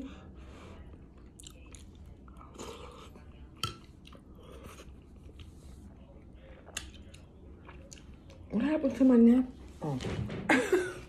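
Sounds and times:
person chewing: 0:01.1 - 0:05.8, 0:06.4 - 0:08.4.

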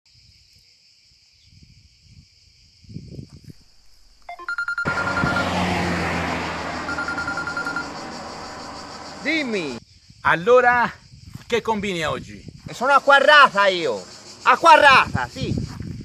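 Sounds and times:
phone keypad tones: 0:04.3 - 0:05.4, 0:06.9 - 0:07.8
steady electronic beep: 0:04.3 - 0:05.7, 0:06.6 - 0:09.2.

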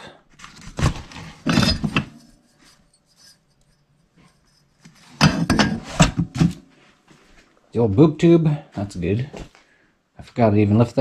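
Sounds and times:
cardboard rustling: 0:00.3 - 0:02.1
metal car parts clanking: 0:01.2 - 0:02.5, 0:04.9 - 0:06.6.

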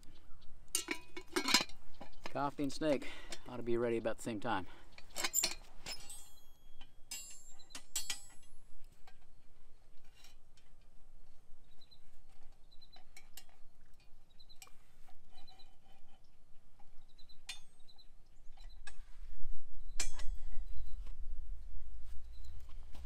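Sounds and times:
metal clinking and ringing: 0:00.8 - 0:02.2, 0:05.0 - 0:09.2, 0:20.0 - 0:20.4.

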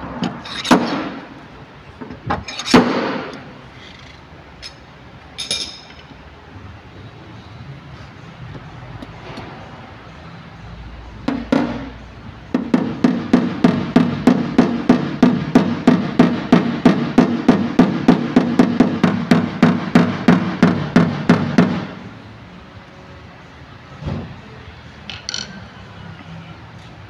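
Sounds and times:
hammer tapping on car panel: 0:12.6 - 0:21.9.

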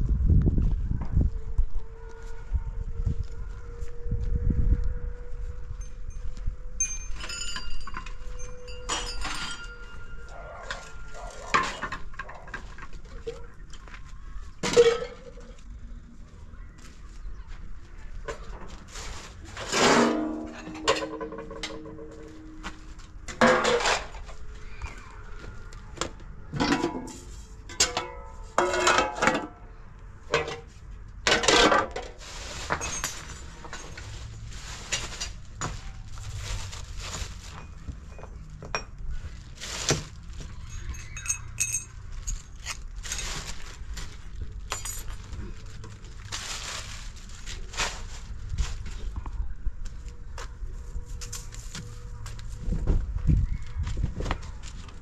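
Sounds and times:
hard objects clinking and clanking: 0:06.8 - 0:13.9, 0:19.6 - 0:24.4, 0:26.5 - 0:29.6, 0:30.2 - 0:39.1, 0:39.8 - 0:46.1.

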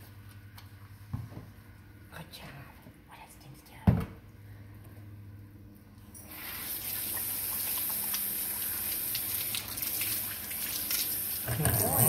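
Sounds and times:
faucet sprayer water splashing: 0:06.3 - 0:12.0.

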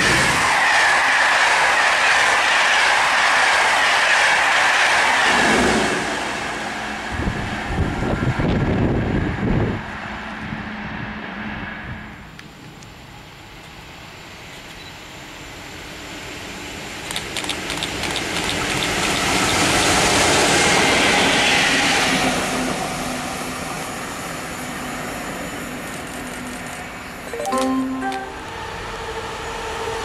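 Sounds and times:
sharp clicks: 0:17.0 - 0:19.6
wheels on rails: 0:17.0 - 0:20.2.

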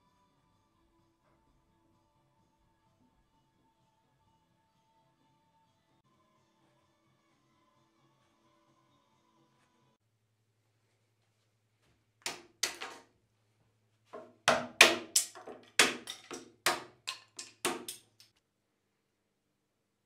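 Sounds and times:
wooden mallet knocking on wood: 0:14.2 - 0:18.0.

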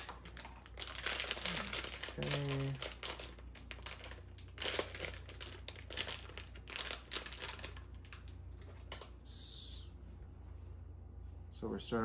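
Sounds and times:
plastic wrapper crinkling: 0:00.0 - 0:09.2.

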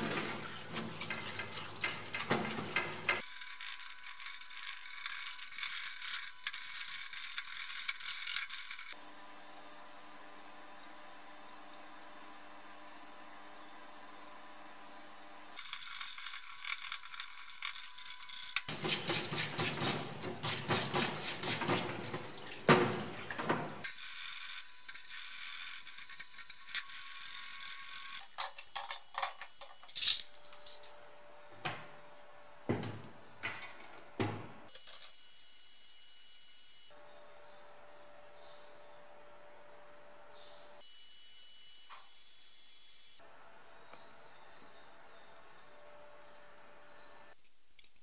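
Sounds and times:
metal parts clinking: 0:28.1 - 0:31.0.

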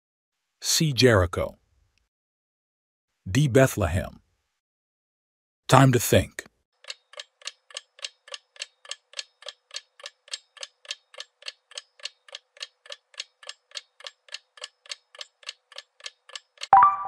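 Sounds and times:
clock ticking fast: 0:06.8 - 0:16.7.

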